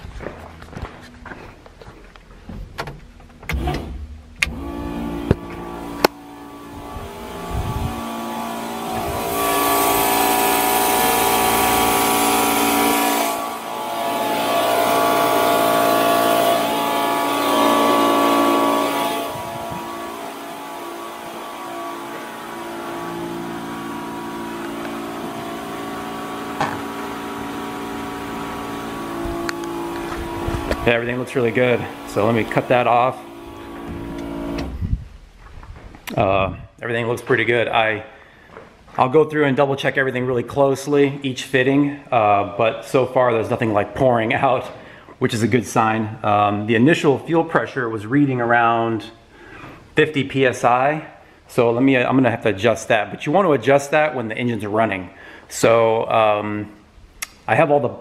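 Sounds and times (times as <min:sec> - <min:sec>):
fuel pump whining: 0:00.0 - 0:39.1, 0:41.2 - 0:46.7
fuel hissing through lines: 0:04.5 - 0:35.0.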